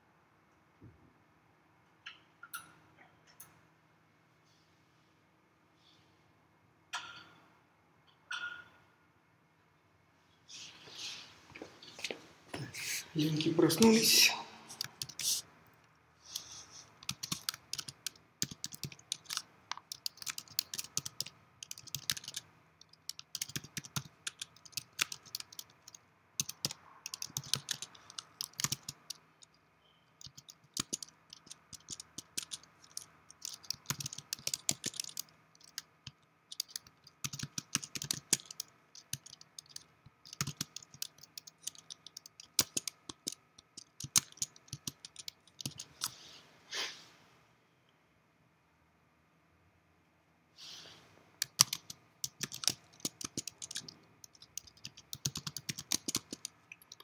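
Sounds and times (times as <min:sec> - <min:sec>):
typing on a keyboard: 0:14.7 - 0:15.3, 0:16.4 - 0:29.6, 0:30.2 - 0:46.1, 0:51.4 - 0:57.0.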